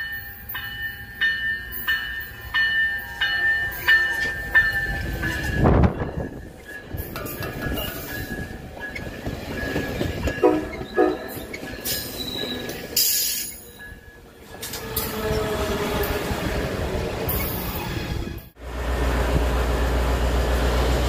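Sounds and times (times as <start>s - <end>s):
train wheel noise: 0.0s - 21.0s
locomotive droning: 4.0s - 17.7s
train horn toots: 10.4s - 11.4s, 14.9s - 16.2s
thin wheel squeal: 10.7s - 13.6s.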